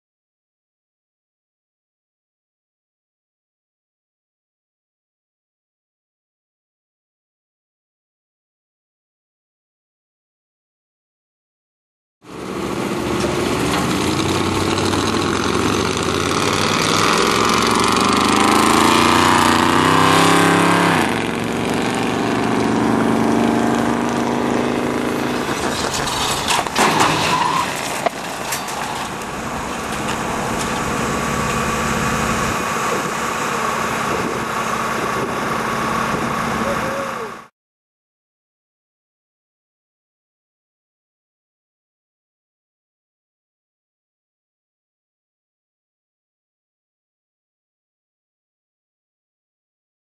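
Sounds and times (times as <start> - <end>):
vehicle engine revving: 12.3 - 37.5
sharp metal impacts: 24.0 - 35.1
truck crashing into steel barrier: 25.0 - 34.8.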